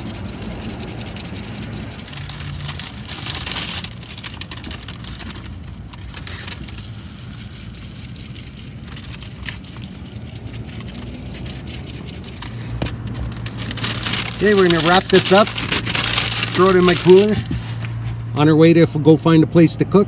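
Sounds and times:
seasoning rattling in a shaker: 0:00.0 - 0:05.2, 0:06.8 - 0:17.4
low vehicle hum: 0:00.0 - 0:20.0.

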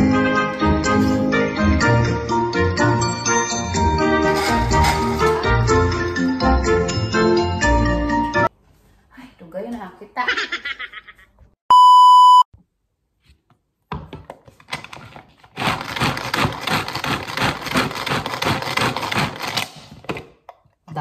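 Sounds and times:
loud steady beep: 0:11.7 - 0:12.5
string food chopper whirring: 0:15.5 - 0:19.8.

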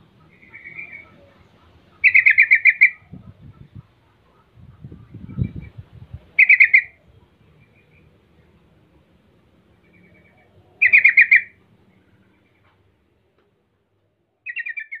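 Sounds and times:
bulbul chattering call: 0:00.0 - 0:05.7, 0:06.3 - 0:08.1, 0:09.8 - 0:11.6, 0:14.4 - 0:15.0.

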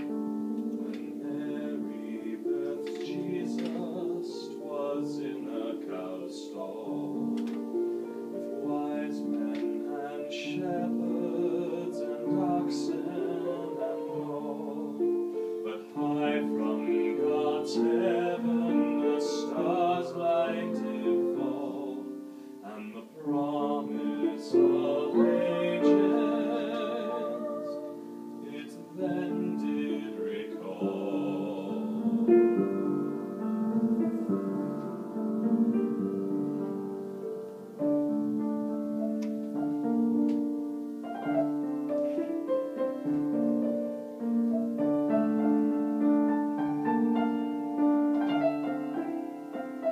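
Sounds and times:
piano: 0:00.0 - 0:49.9
woman singing operatically: 0:08.6 - 0:15.0, 0:22.8 - 0:32.0.

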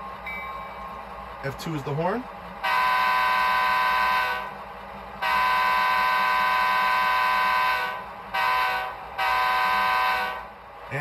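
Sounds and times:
locomotive air horn from small speaker: 0:02.6 - 0:04.6, 0:05.2 - 0:10.5.

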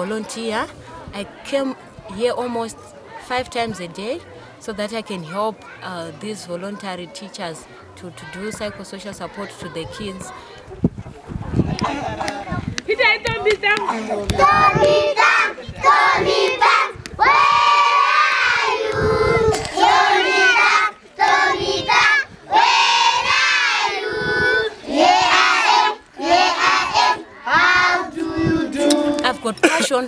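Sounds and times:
children singing together: 0:13.9 - 0:29.4.

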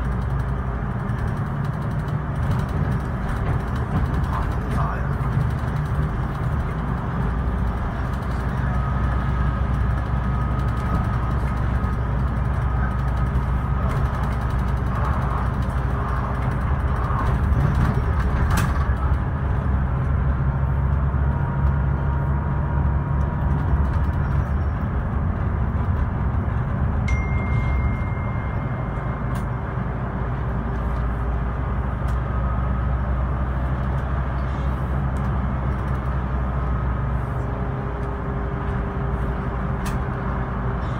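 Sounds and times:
bus diesel engine drone: 0:00.0 - 0:40.9
road noise: 0:00.0 - 0:40.9.

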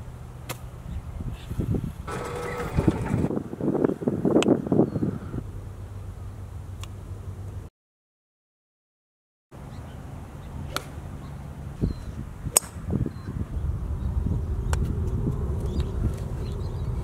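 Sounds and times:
wind rumble on microphone: 0:00.7 - 0:07.7, 0:09.8 - 0:17.0
golf clubs striking balls: 0:10.7 - 0:11.0, 0:12.5 - 0:12.8.

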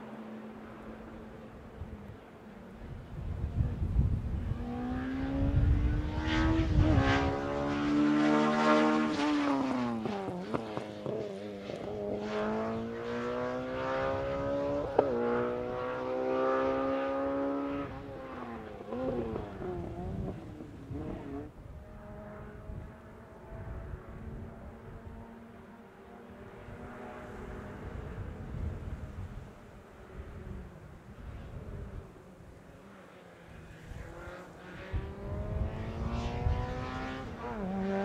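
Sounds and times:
rally car engine at high revs: 0:04.4 - 0:29.1, 0:32.7 - 0:38.0.

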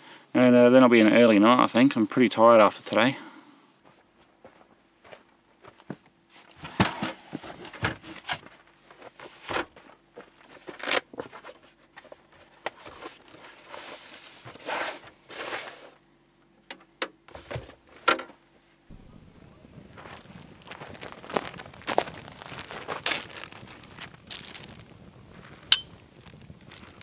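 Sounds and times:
canvas rustling and scraping: 0:06.3 - 0:16.0, 0:19.8 - 0:27.0.

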